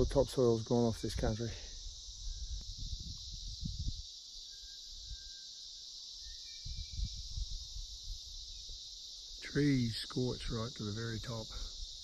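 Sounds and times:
insect chorus: 0:00.0 - 0:12.0
low rumbling on microphone: 0:02.3 - 0:04.0.

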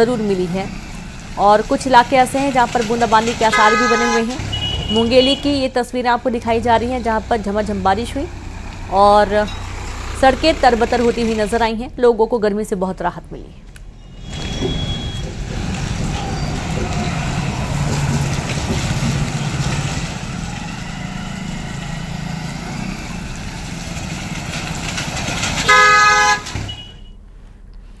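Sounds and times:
vehicle engines running: 0:00.0 - 0:28.0
vehicle horn honk: 0:03.5 - 0:05.6, 0:25.6 - 0:27.2
tyres hissing on wet road: 0:14.3 - 0:26.4.

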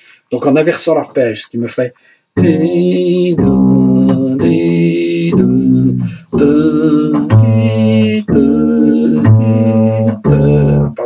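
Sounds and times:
plucked double bass: 0:02.4 - 0:11.0.

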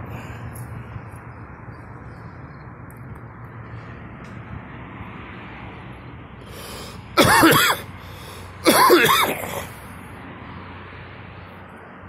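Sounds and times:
person coughing: 0:07.2 - 0:07.9, 0:08.6 - 0:09.8.

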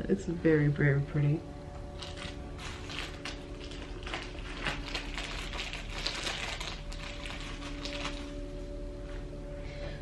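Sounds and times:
plastic bag rustling: 0:01.8 - 0:08.8.

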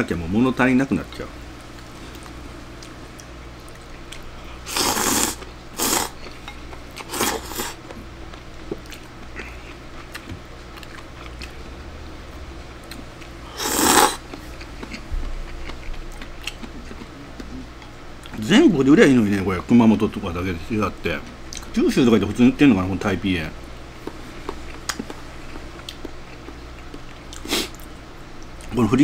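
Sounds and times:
person slurping noodles and soup: 0:04.7 - 0:06.2, 0:07.0 - 0:07.8, 0:13.5 - 0:14.2.

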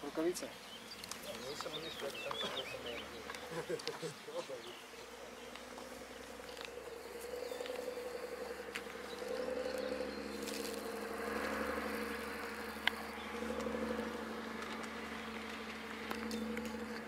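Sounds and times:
insect buzzing: 0:02.8 - 0:17.0
faint clicks: 0:12.4 - 0:14.0.

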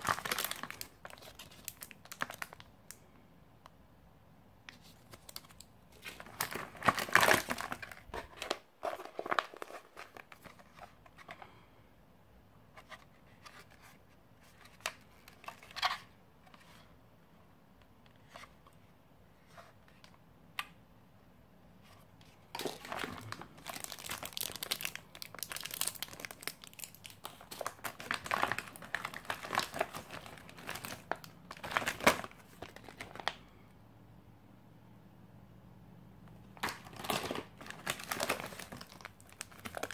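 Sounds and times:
plastic pouches crinkling: 0:00.0 - 0:03.0, 0:04.7 - 0:11.5, 0:22.5 - 0:33.5, 0:36.5 - 0:39.9.

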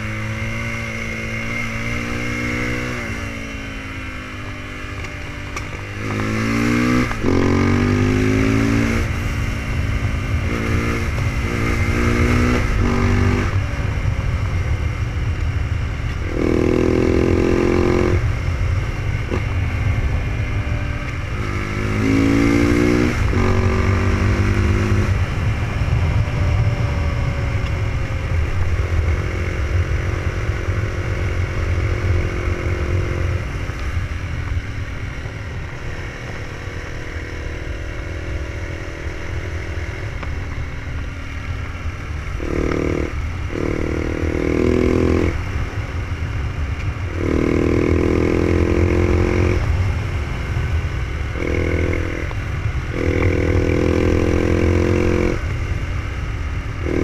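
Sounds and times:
motorcycle engine accelerating: 0:00.0 - 0:57.0
wind rush on microphone: 0:04.9 - 0:36.4.

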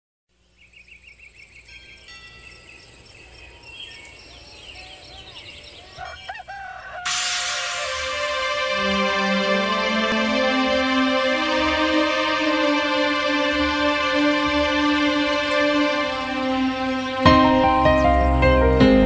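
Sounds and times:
songbirds chirping and trilling: 0:00.3 - 0:18.6
rooster crowing: 0:05.9 - 0:08.2
music: 0:07.1 - 0:19.0.

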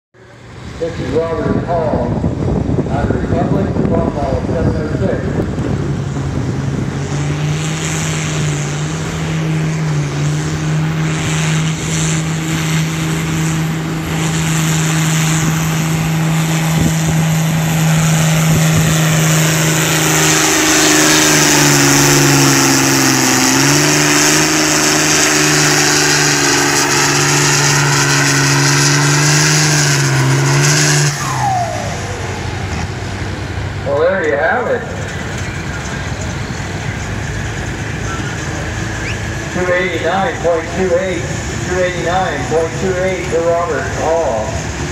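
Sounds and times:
tractor diesel engine under load: 0:00.2 - 0:44.9
turbocharger whistle: 0:10.9 - 0:32.9, 0:35.3 - 0:41.1.

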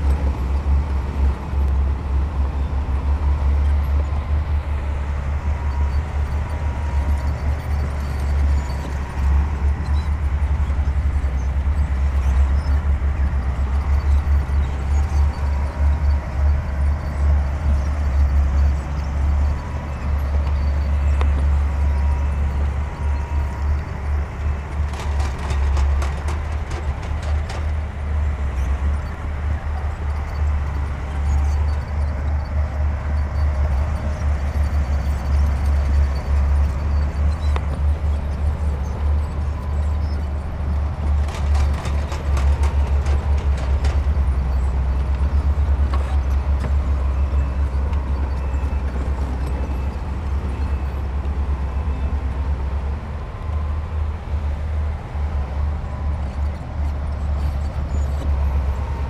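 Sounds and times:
bulldozer diesel engine running: 0:00.0 - 0:59.0
clicking and clatter: 0:24.7 - 0:27.8, 0:41.0 - 0:44.3.

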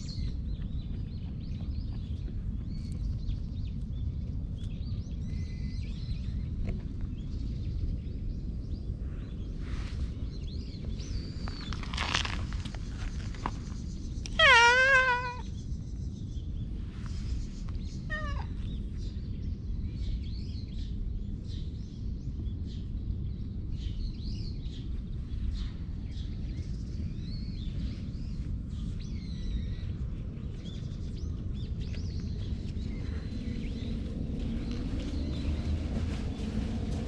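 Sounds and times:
low outdoor rumble: 0:00.0 - 0:37.0
small birds chirping: 0:00.0 - 0:37.0
cat meowing: 0:14.3 - 0:15.4, 0:18.1 - 0:18.6.

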